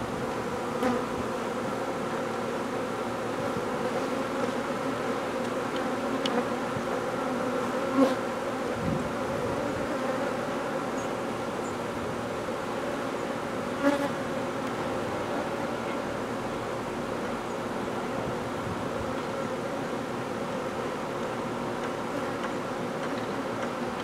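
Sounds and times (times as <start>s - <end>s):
bee swarm buzzing: 0.0s - 24.0s.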